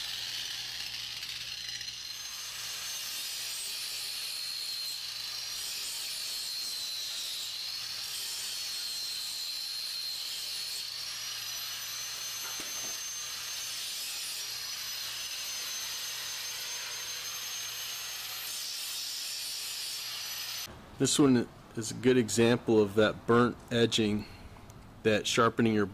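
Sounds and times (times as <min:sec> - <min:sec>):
angle grinder whining on metal: 0:00.0 - 0:20.7.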